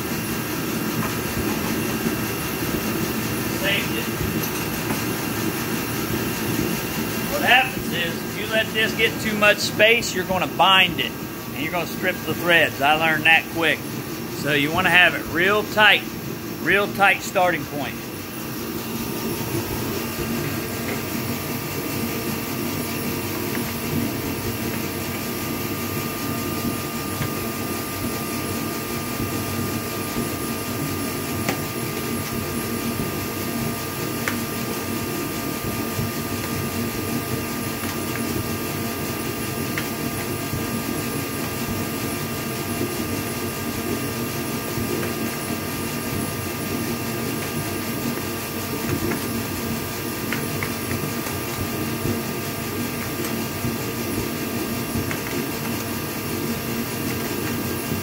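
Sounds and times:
machine hum: 0.0 - 31.3.

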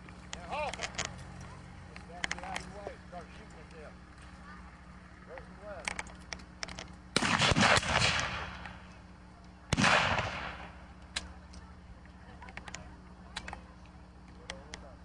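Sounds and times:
rifle shots: 7.1 - 8.8, 9.7 - 10.8
distant gunshot pops: 7.2 - 8.8, 9.7 - 10.7.

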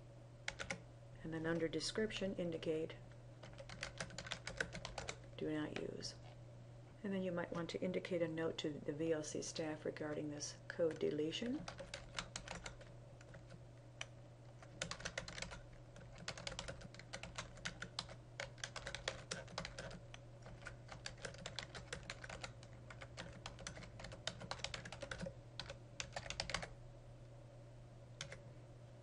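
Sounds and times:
steady low hum: 0.0 - 29.0
computer keyboard typing: 0.5 - 0.8, 3.4 - 5.9, 10.8 - 26.7, 28.2 - 28.4.

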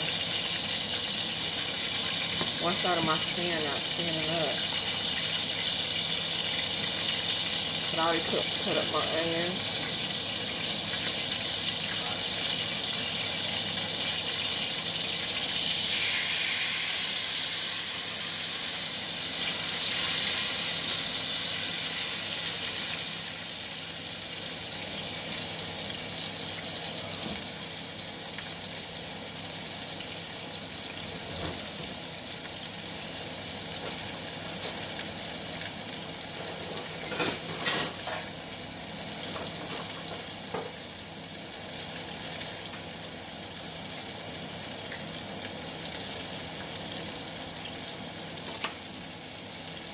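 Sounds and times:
onions sizzling in hot oil: 0.0 - 49.9.

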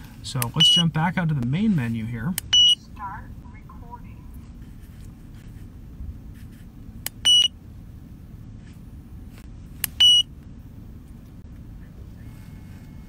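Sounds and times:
short high keypress beeps: 7.2 - 7.5.

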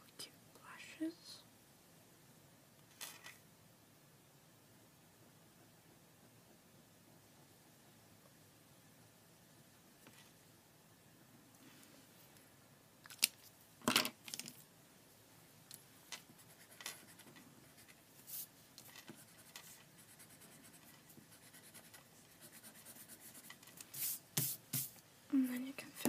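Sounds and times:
pencil scratching on paper: 16.3 - 24.9.

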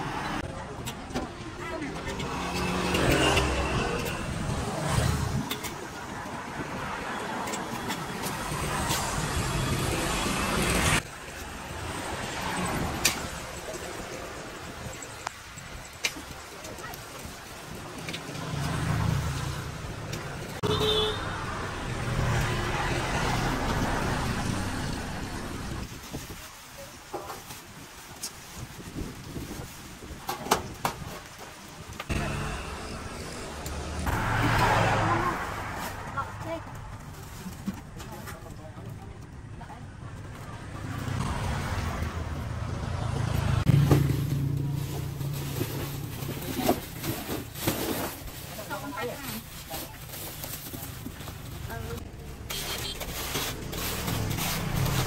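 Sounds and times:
road traffic rumble: 0.0 - 55.0
vehicle engine passing: 32.1 - 36.8.

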